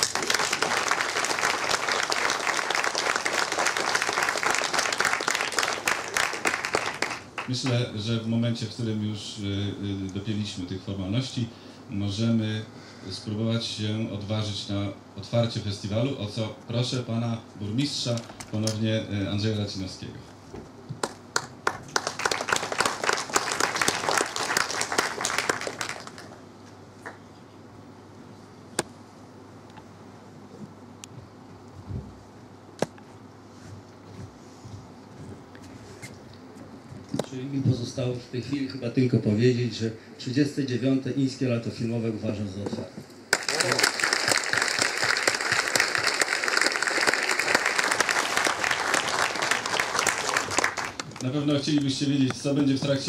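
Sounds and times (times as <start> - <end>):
audience applauding: 0.0 - 7.6, 21.0 - 26.4, 43.3 - 51.3.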